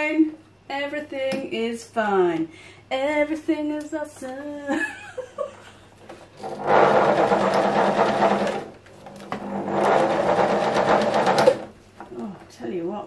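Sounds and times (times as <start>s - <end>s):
sewing machine stitching: 6.4s - 11.7s.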